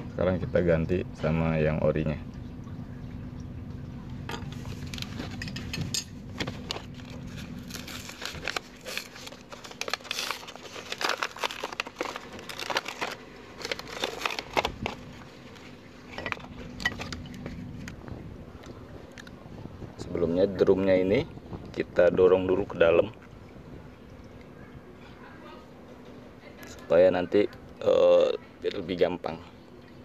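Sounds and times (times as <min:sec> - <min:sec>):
packaging crinkling and tearing: 0:06.3 - 0:18.0.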